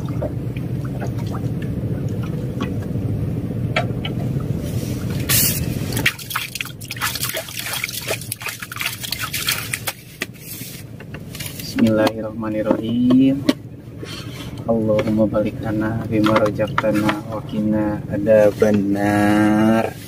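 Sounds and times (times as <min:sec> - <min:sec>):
steady low hum: 0:00.0 - 0:20.0
water trickling and dripping: 0:05.9 - 0:09.9.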